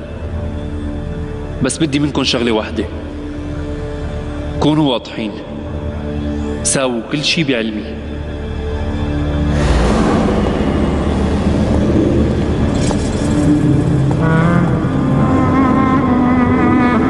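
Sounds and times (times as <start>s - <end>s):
dramatic film score: 0.0s - 17.0s
low sustained string notes: 0.0s - 17.0s.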